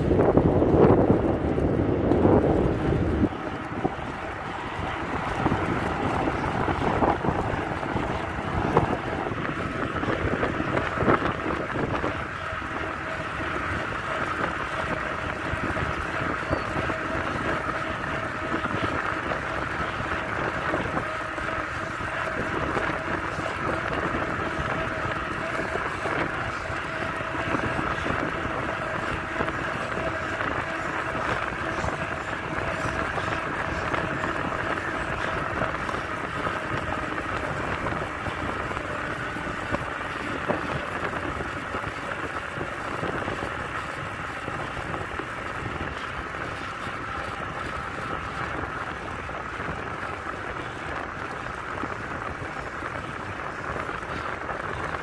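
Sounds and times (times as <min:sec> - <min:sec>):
bicycle rolling road noise: 0:00.0 - 0:55.0
wind rushing over microphone: 0:00.0 - 0:55.0.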